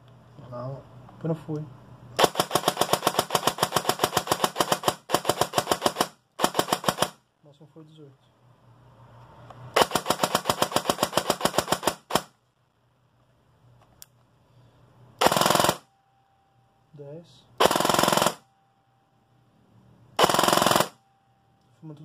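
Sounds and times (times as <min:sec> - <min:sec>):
airsoft gun firing bursts: 0:02.2 - 0:07.2, 0:09.8 - 0:12.3, 0:15.2 - 0:15.8, 0:17.6 - 0:18.4, 0:20.2 - 0:21.0.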